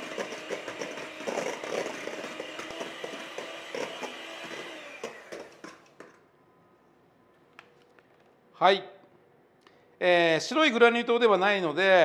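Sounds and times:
beaters whipping in metal bowl: 0.0 - 6.1
electric hand mixer running: 0.0 - 6.2.

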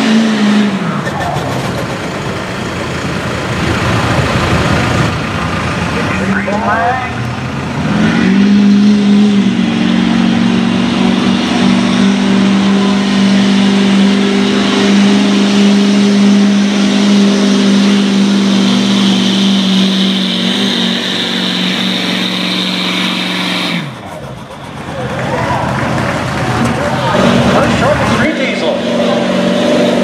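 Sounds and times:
diesel engine revving: 0.0 - 30.0.

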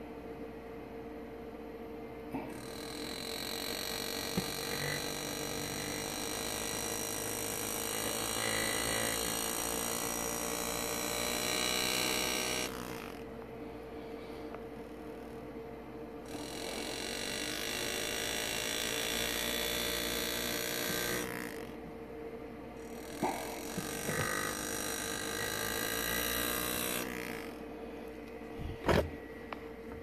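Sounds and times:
engraving tool buzzing on metal: 2.3 - 22.0, 22.7 - 28.1.

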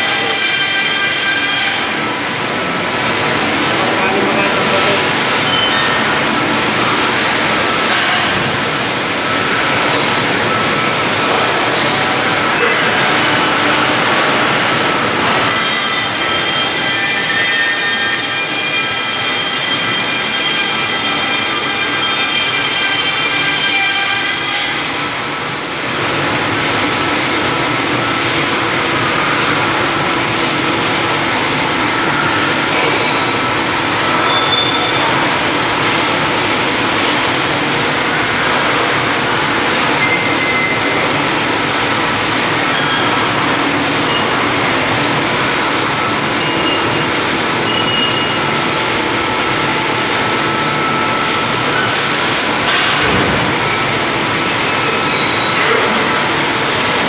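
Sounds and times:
loud machinery din: 0.0 - 57.0
short high squeaks: 5.4 - 6.1, 34.0 - 35.1.

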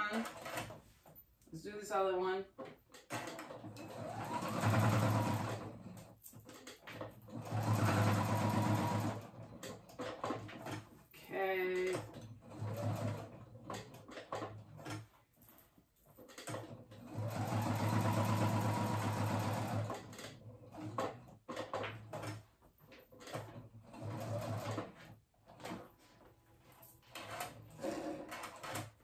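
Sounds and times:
electric sewing machine stitching: 3.0 - 10.9, 11.8 - 15.1, 16.4 - 22.5, 23.2 - 25.8, 27.1 - 29.0.

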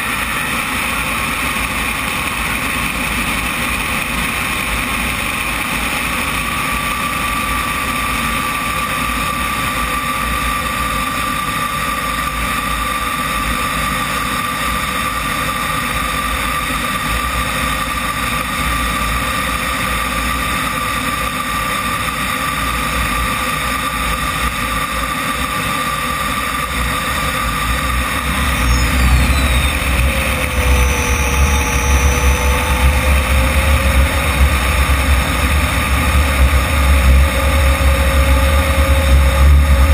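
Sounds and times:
jet turbine whine: 0.0 - 39.9
wind rumble on microphone: 15.0 - 39.9.

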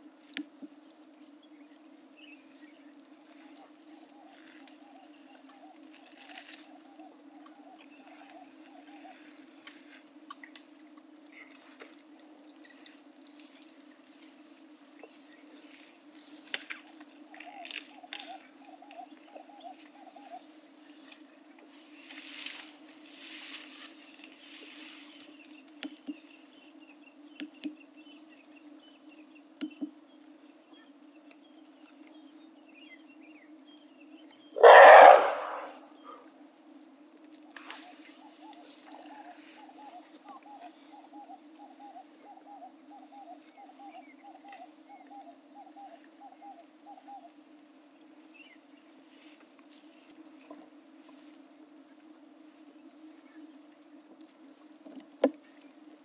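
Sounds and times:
tearing of grass: 3.6 - 6.7
elephant roaring: 34.6 - 35.8.

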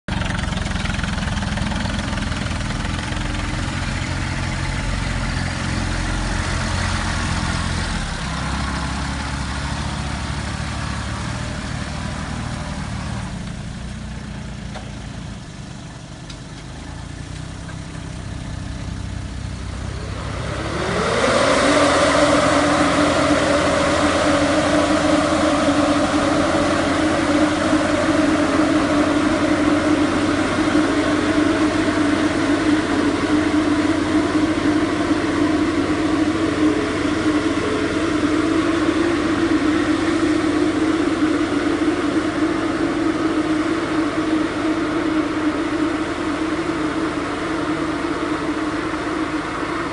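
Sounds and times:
diesel tractors revving: 0.1 - 49.9
air-blast sprayer fan drone: 15.8 - 49.9.

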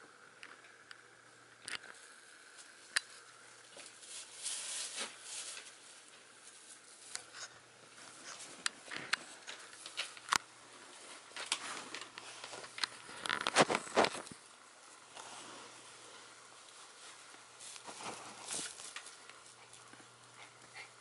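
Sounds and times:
puppy paws pattering on carpet: 16.6 - 21.0.

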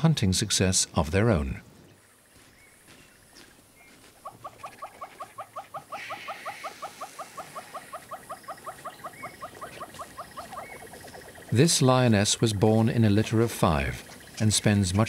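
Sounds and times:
animal chirping rapidly: 4.2 - 11.6.

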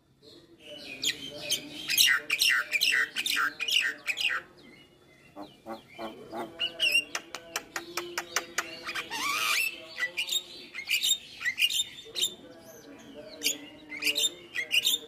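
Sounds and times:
bird clicks and chatter: 5.4 - 12.4.

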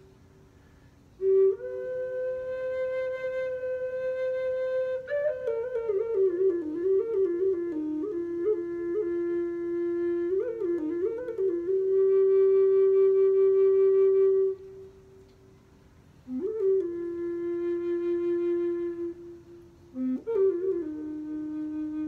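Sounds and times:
wooden flute melody: 0.0 - 0.2, 1.2 - 15.6, 16.2 - 22.0.

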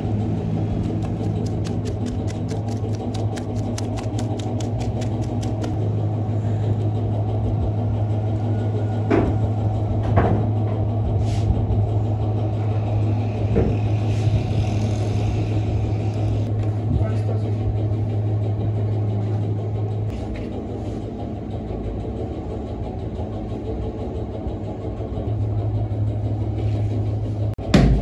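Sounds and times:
machine hum: 0.0 - 28.0
fast regular ticking: 0.6 - 5.8.

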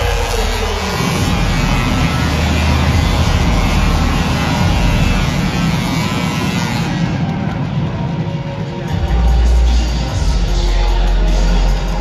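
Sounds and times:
arena music over loudspeakers: 0.0 - 12.0
crowd noise: 0.0 - 12.0.

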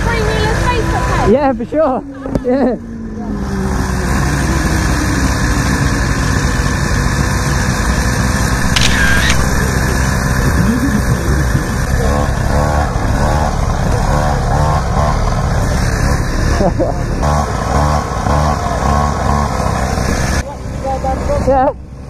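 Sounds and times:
motorcycle engines idling: 5.1 - 22.0
high whine: 8.5 - 13.9.

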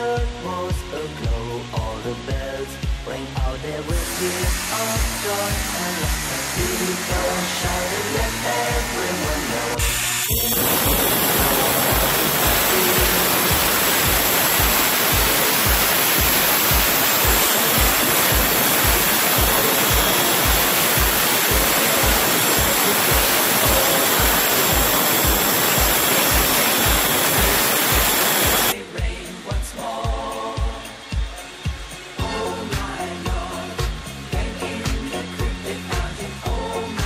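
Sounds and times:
music with steady beat: 0.0 - 37.0
angle grinder cutting tile: 3.9 - 28.8.

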